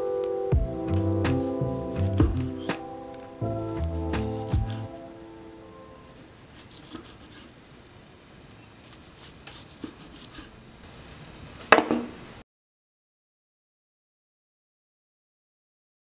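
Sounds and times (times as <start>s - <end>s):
knife cutting on wooden board: 3.8s - 5.0s, 6.1s - 7.5s, 8.9s - 10.6s.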